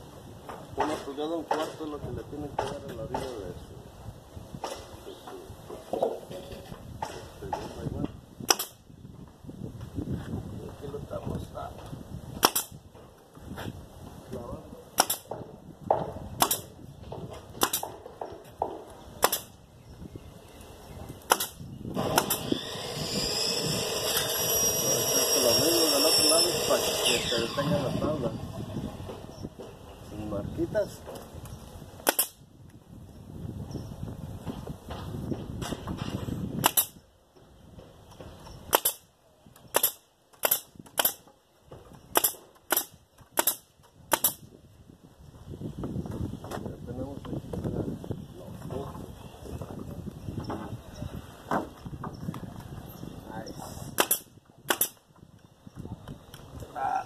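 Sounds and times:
nail gun firing: 8.5s - 8.8s, 12.4s - 12.8s, 15.0s - 15.5s, 16.4s - 16.8s, 17.6s - 18.0s, 19.2s - 19.6s, 21.3s - 24.4s, 32.0s - 32.4s, 36.6s - 37.0s, 38.7s - 39.1s, 39.7s - 41.3s, 42.1s - 44.4s, 53.9s - 55.0s.

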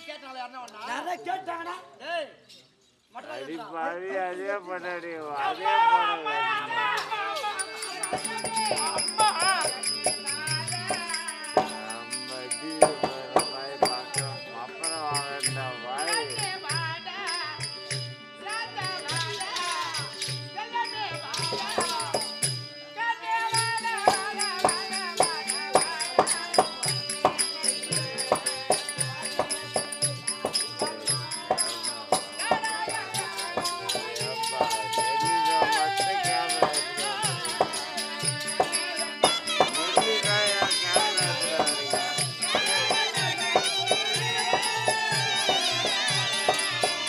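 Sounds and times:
ringing metal strokes: 7.4s - 47.0s
hand drum beat: 7.6s - 12.0s, 12.7s - 15.4s, 21.3s - 22.6s, 23.6s - 47.0s
wavering melody: 23.7s - 47.0s.

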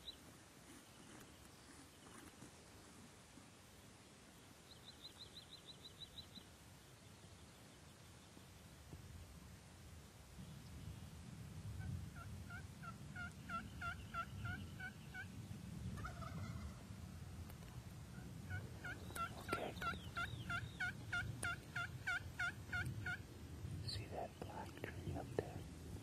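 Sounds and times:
turkey yelping: 12.2s - 15.3s, 16.0s - 16.8s, 18.2s - 23.2s.

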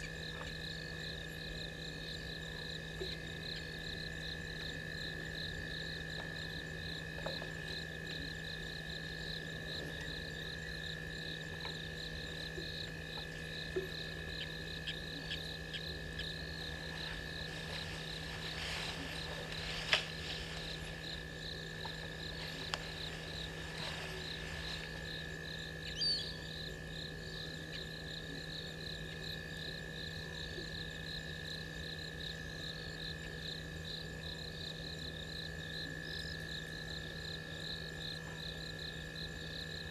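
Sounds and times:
crickets and insects chirping: 0.0s - 39.9s
low steady hum: 0.0s - 39.9s
rustling: 16.5s - 25.2s.

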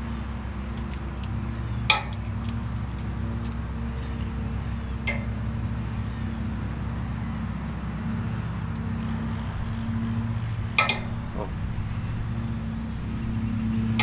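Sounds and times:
low hum: 0.0s - 14.0s
metal ring clinking: 5.1s - 5.4s, 10.8s - 11.4s.

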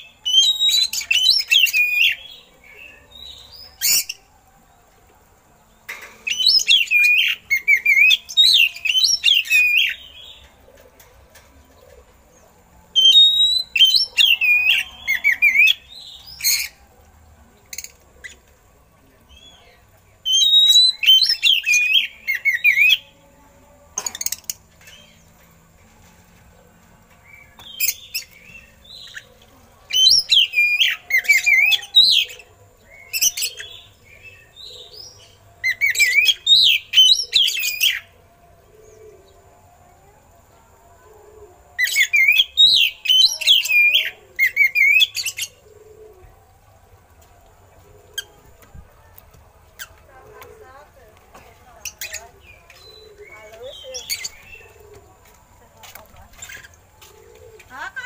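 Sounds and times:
bird singing warbling phrases: 51.8s - 55.1s.

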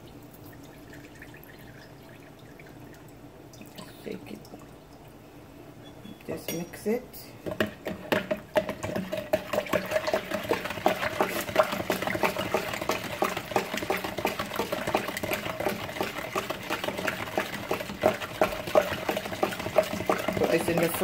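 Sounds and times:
spoon knocking plastic pitcher: 7.4s - 21.0s
liquid swishing: 7.8s - 21.0s.

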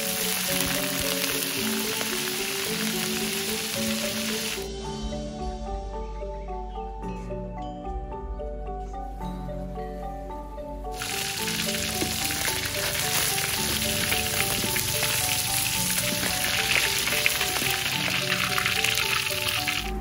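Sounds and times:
fish sizzling in hot oil: 0.0s - 4.7s, 11.0s - 20.0s
background music melody: 0.0s - 20.0s.

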